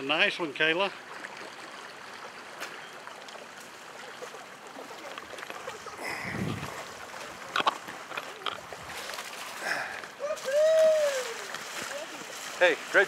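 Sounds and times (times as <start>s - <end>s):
river current over stream bed: 0.0s - 13.0s
low splashing rush: 3.3s - 13.0s.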